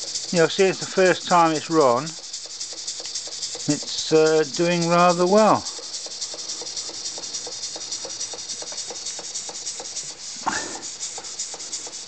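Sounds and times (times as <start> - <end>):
air engine exhaust chuffing: 0.0 - 12.0
air leaking hiss: 0.0 - 12.0.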